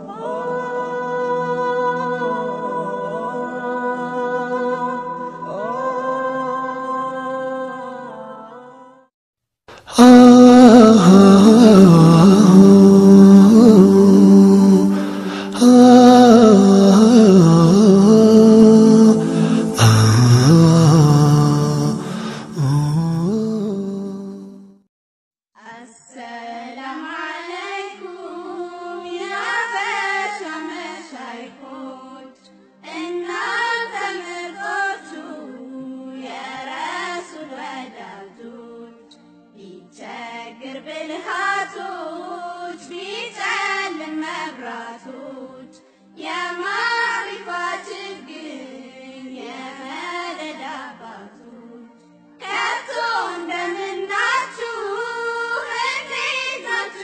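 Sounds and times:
high voice singing: 0:09.7 - 0:24.6
steady low tone: 0:10.0 - 0:24.3.

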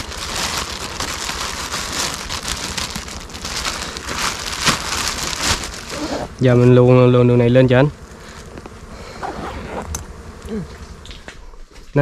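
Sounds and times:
leaves and twigs rustling and snapping: 0:00.0 - 0:07.0, 0:08.0 - 0:08.9.

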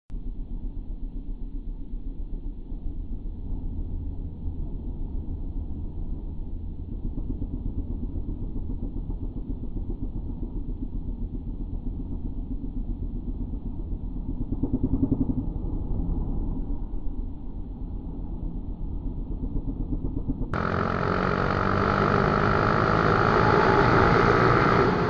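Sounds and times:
motorcycle engine rumble: 0:20.6 - 0:25.0.

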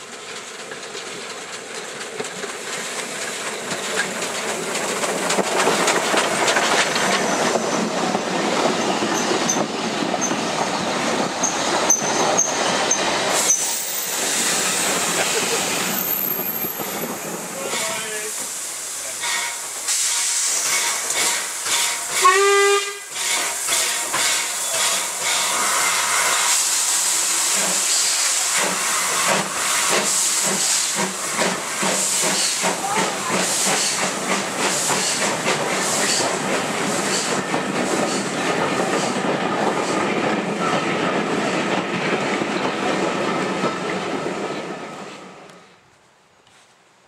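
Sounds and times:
steam hiss and exhaust beats: 0:00.0 - 0:43.5
train wheels clicking: 0:00.0 - 0:45.6
steam whistle blast: 0:22.1 - 0:23.4.

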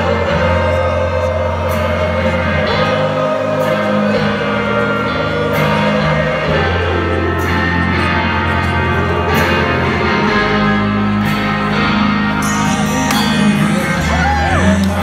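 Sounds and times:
electric guitar: 0:00.0 - 0:15.0
live rock band: 0:00.0 - 0:15.0
low bass notes: 0:00.0 - 0:15.0.

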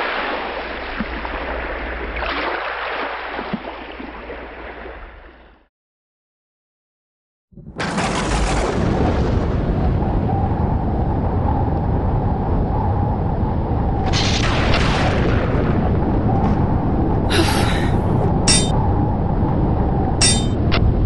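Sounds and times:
bright clinking bursts: 0:18.5 - 0:18.7, 0:20.2 - 0:20.6.

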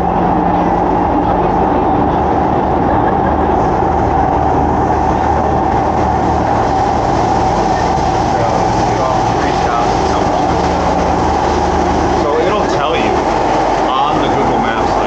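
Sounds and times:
high whine: 0:00.0 - 0:15.0
train rumble inside carriage: 0:00.0 - 0:15.0.

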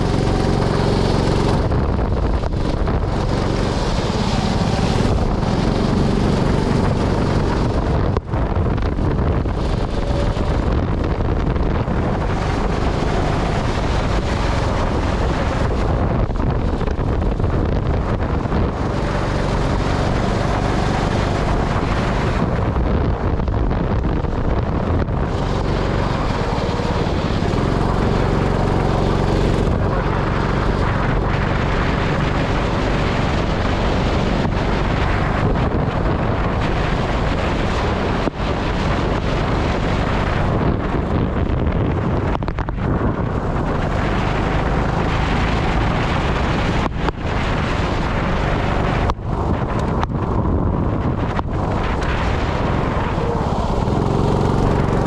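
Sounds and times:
go-kart engine running: 0:00.0 - 0:55.0
wind noise on microphone: 0:00.0 - 0:55.0.

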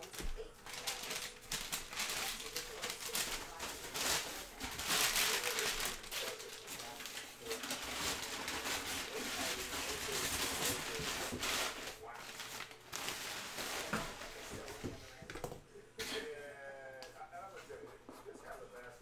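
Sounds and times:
packing paper crinkling: 0:00.0 - 0:14.9.

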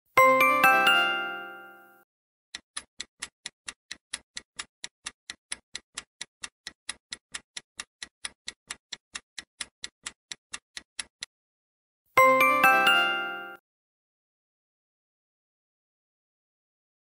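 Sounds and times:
clock-like timer ticks: 0:02.5 - 0:11.3.

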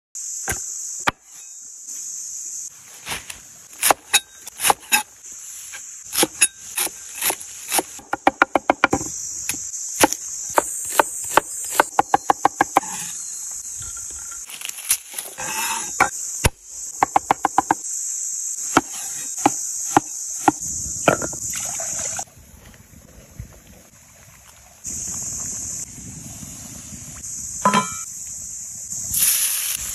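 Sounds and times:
high-pitched insect buzz: 0:00.2 - 0:02.9, 0:04.1 - 0:22.3, 0:24.9 - 0:29.9.

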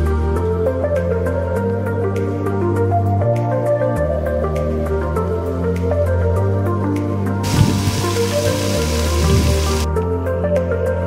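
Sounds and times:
background music with sustained notes: 0:00.0 - 0:11.0
chicken sizzling in a frying pan: 0:07.4 - 0:09.9.

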